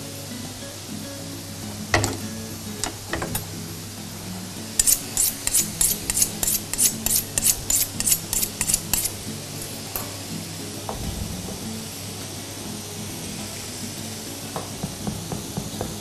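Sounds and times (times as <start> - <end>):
faint background music: 0.0 - 16.0
knife cutting food: 4.8 - 9.8.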